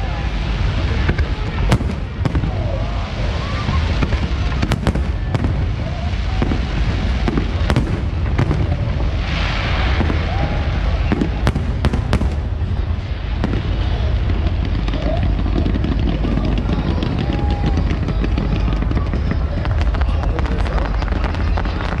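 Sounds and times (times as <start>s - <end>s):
continuous low rumble: 0.0s - 22.0s
firework hissing burst: 0.0s - 22.0s
fireworks bangs: 0.0s - 22.0s.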